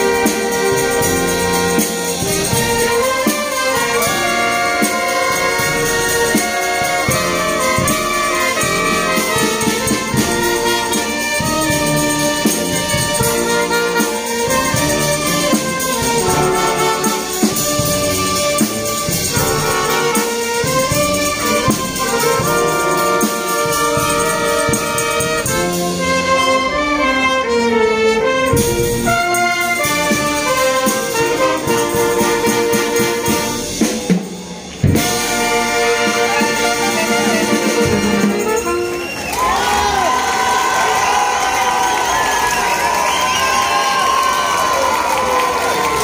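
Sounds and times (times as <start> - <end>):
wind band playing: 0.0 - 46.0.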